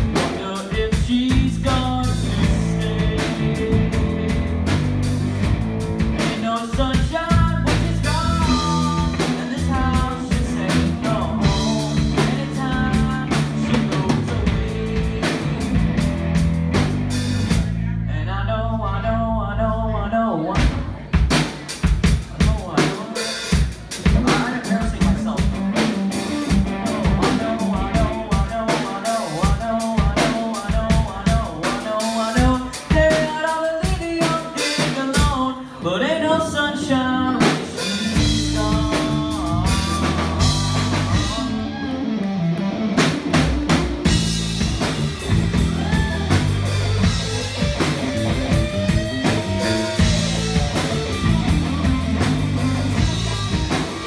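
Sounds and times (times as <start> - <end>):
drum kit: 0.0 - 18.0, 20.6 - 35.5, 37.3 - 54.0
bass guitar: 0.0 - 54.0
electric guitar lead lines: 36.8 - 54.0.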